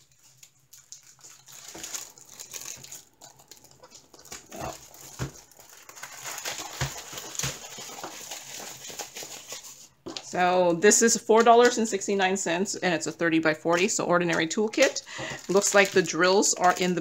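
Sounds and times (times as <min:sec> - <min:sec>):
plastic packaging crinkling: 0:00.0 - 0:10.3, 0:13.7 - 0:17.0.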